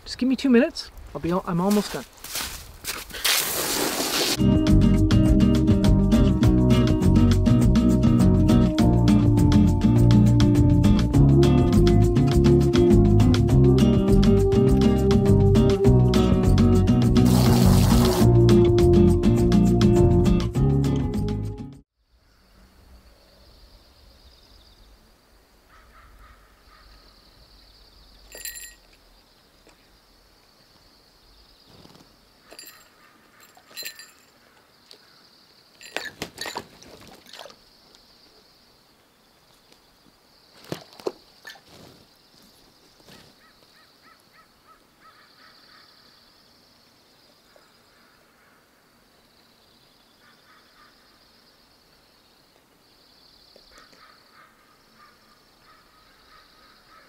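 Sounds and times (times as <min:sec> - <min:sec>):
bird splashing in water: 0:36.0 - 0:37.6.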